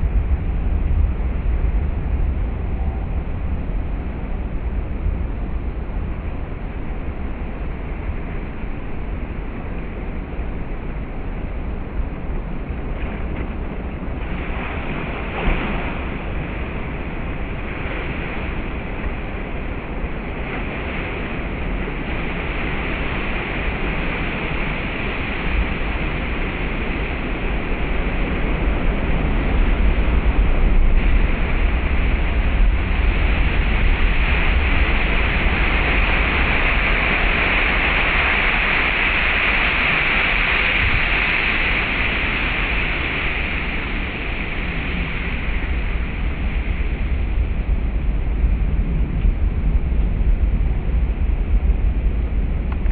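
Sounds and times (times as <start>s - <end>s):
wind buffeting microphone: 0.0s - 52.9s
ocean waves crashing on rocks: 13.7s - 47.8s.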